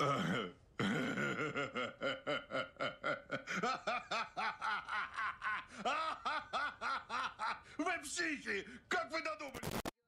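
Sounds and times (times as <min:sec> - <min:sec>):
man laughing hard: 0:00.8 - 0:07.8.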